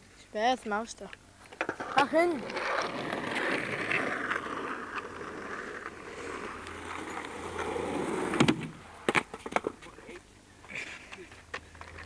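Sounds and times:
skateboard wheels rolling on asphalt: 1.4s - 10.2s, 11.0s - 12.0s
skateboard clacking on pavement: 1.5s - 10.0s.

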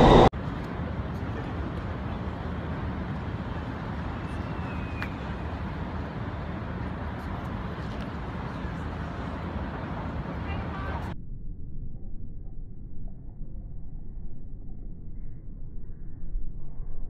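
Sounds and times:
distant city traffic rumble: 0.0s - 11.2s.

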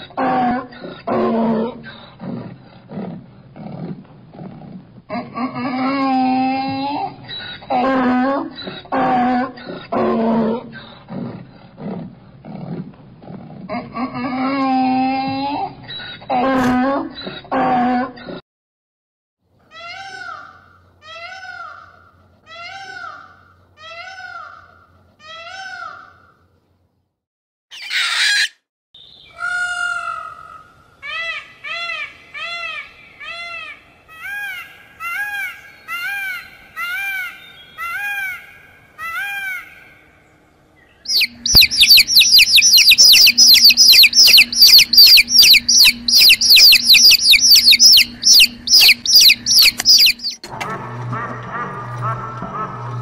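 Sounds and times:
peacock calling: 27.7s - 40.2s, 40.9s - 50.4s
donkey braying: 41.1s - 50.4s.

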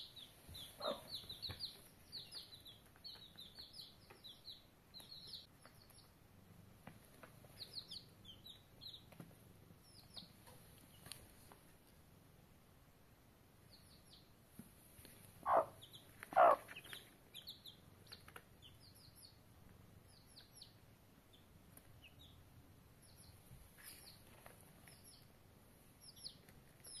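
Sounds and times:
chicks peeping: 0.0s - 11.9s, 13.5s - 27.0s
hen clucking: 0.6s - 1.7s, 15.4s - 17.1s.

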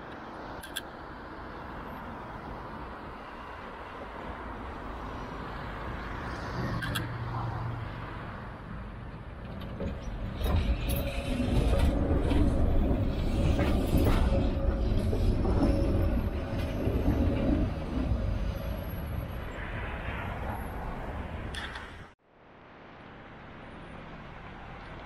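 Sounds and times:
tram rumbling past: 0.0s - 22.2s
road traffic passing: 0.0s - 25.0s.

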